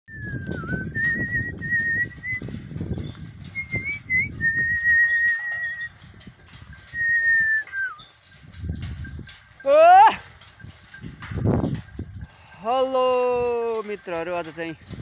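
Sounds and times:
person whistling: 0:00.1 - 0:02.5, 0:03.6 - 0:05.9, 0:07.0 - 0:08.0
goat hooves clattering on wooden slats: 0:00.3 - 0:15.0.

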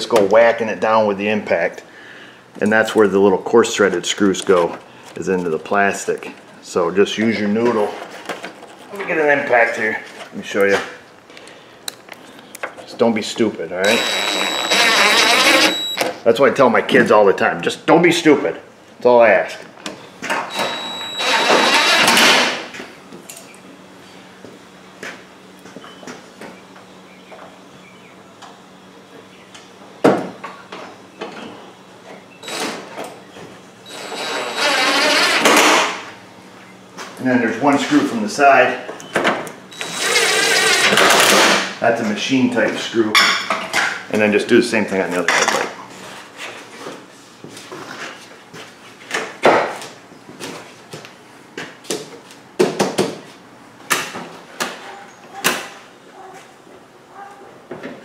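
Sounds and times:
cordless impact driver running: 0:13.8 - 0:16.0, 0:20.5 - 0:22.6, 0:32.4 - 0:32.8, 0:33.9 - 0:35.7, 0:39.7 - 0:41.3.

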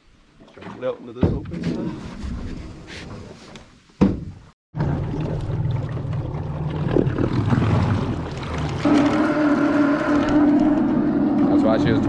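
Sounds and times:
electric boat motor churning water: 0:04.8 - 0:12.0.

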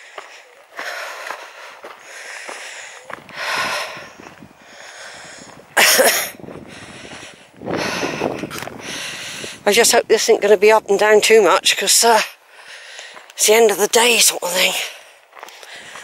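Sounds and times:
heavy breathing: 0:00.0 - 0:09.7, 0:12.3 - 0:13.4, 0:14.8 - 0:16.0.

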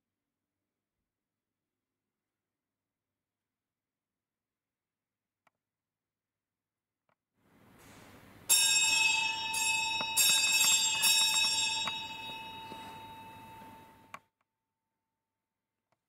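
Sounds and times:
bell ringing: 0:07.8 - 0:14.2.

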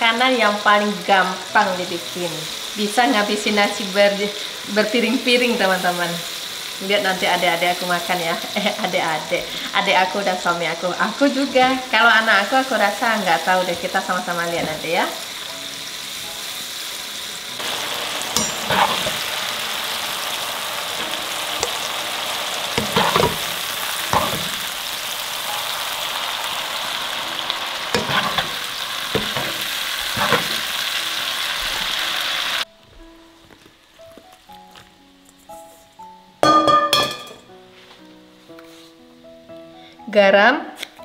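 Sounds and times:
oil sizzling in a wok: 0:00.0 - 0:32.7
metal skimmer scraping a pan: 0:18.4 - 0:19.3, 0:22.8 - 0:24.6, 0:28.0 - 0:30.7.

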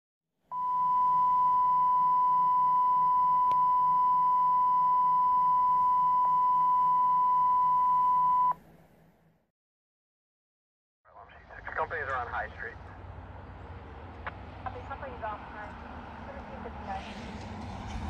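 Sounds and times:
steady electronic beep tone: 0:00.5 - 0:08.6.

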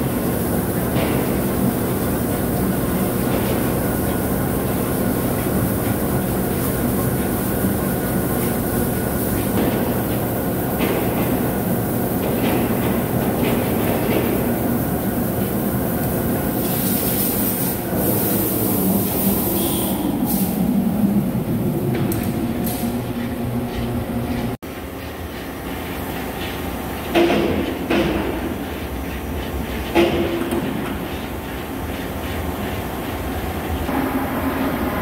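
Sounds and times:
lathe mechanical drone: 0:33.1 - 0:35.0.

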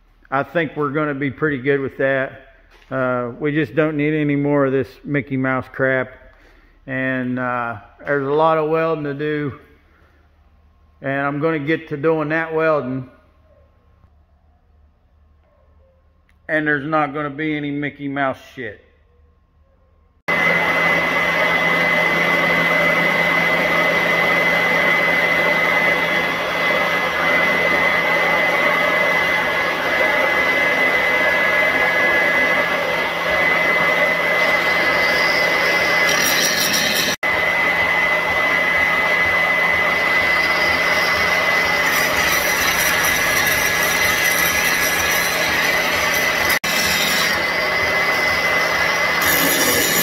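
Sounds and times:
electric grinder on steel: 0:20.3 - 0:50.0.

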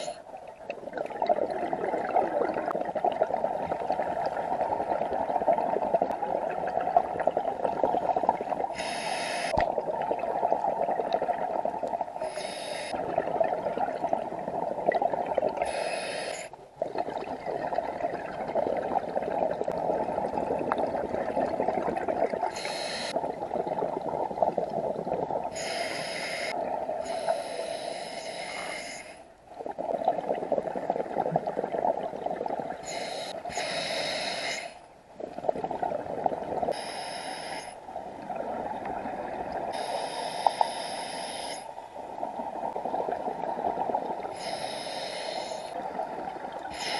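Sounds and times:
exhaled bubbles rushing underwater: 0:00.0 - 0:12.3, 0:12.9 - 0:15.8, 0:16.6 - 0:27.2, 0:29.5 - 0:34.3, 0:35.1 - 0:36.8, 0:37.8 - 0:39.9, 0:41.8 - 0:46.9
regulator inhalation hiss: 0:08.7 - 0:09.6, 0:12.2 - 0:13.0, 0:15.6 - 0:16.5, 0:22.5 - 0:23.2, 0:25.5 - 0:26.5, 0:27.1 - 0:29.2, 0:32.8 - 0:34.8, 0:36.7 - 0:37.8, 0:39.8 - 0:41.8, 0:44.4 - 0:45.8.

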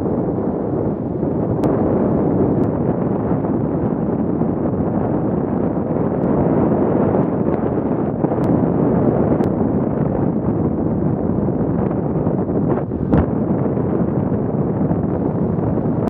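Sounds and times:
wind rushing on microphone: 0:00.0 - 0:16.0.

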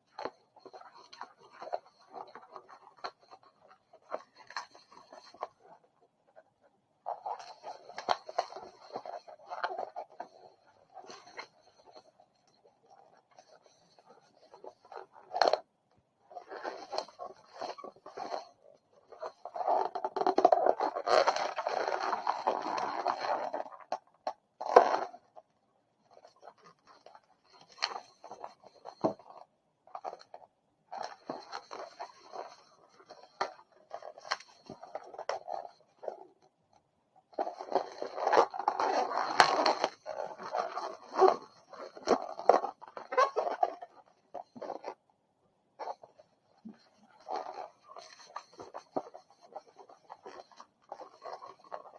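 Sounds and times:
balloon squeaking and rubbing: 0:37.4 - 0:45.0, 0:45.8 - 0:51.9.

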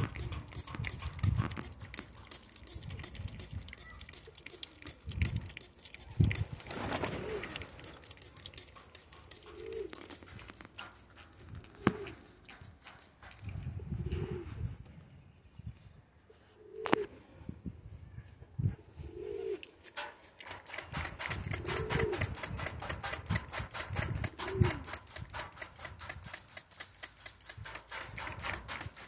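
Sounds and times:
small clicks: 0:00.0 - 0:12.6, 0:19.6 - 0:29.0.

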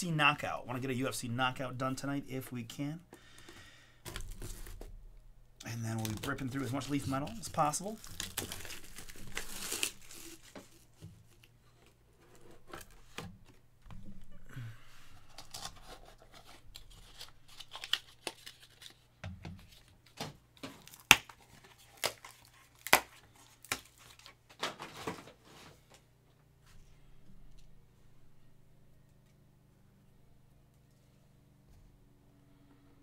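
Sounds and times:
plastic wrap tearing and crinkling: 0:04.0 - 0:04.9, 0:05.8 - 0:11.5, 0:15.2 - 0:25.3.

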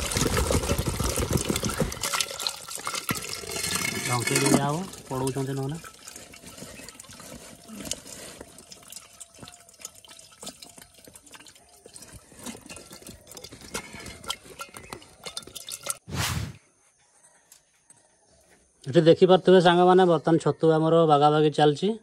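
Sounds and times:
fish flicking in metal bowl: 0:12.8 - 0:16.0.

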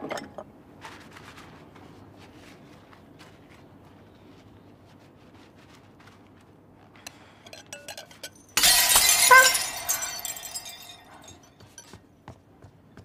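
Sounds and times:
dishes clinking: 0:07.4 - 0:12.0
shards scattering and clinking: 0:07.5 - 0:11.9
dishware smashing on tile floor: 0:07.8 - 0:11.5.

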